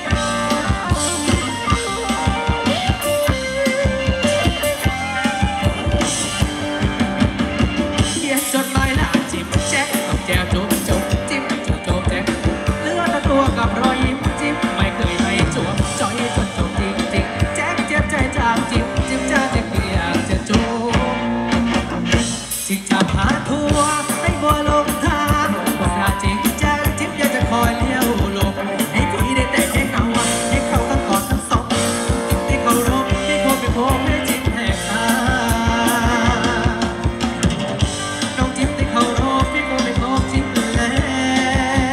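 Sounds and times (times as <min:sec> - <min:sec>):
guitar: 0:00.0 - 0:41.9
steady drumbeat: 0:00.0 - 0:41.9
person singing: 0:07.9 - 0:21.4, 0:22.6 - 0:37.4, 0:38.1 - 0:41.9.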